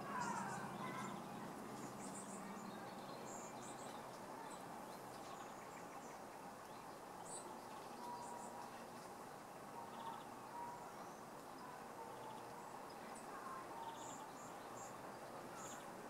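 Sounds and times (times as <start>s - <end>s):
steady outdoor hiss: 0.0s - 16.0s.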